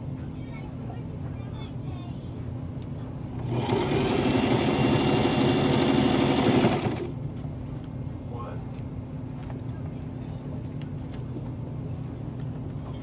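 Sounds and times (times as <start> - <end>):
sewing machine stitching: 3.4 - 7.1.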